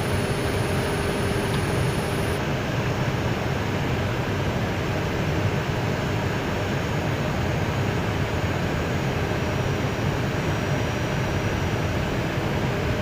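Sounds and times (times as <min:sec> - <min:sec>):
faint high whine: 0:00.0 - 0:02.4
jet cockpit rumble and hiss: 0:00.0 - 0:13.0.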